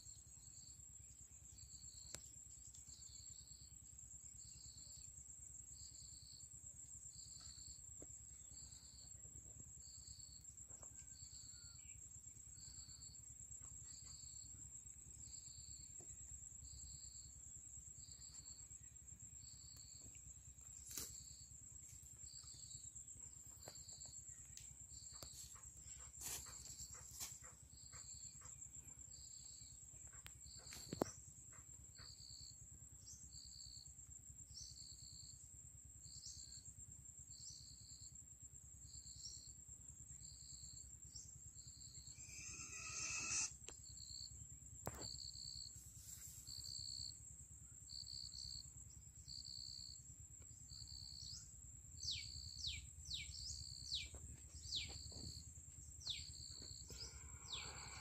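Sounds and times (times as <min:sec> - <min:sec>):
high-pitched insect drone: 0:41.7 - 0:45.1, 0:56.0 - 0:58.0
short falling bird calls: 0:42.2 - 0:43.5.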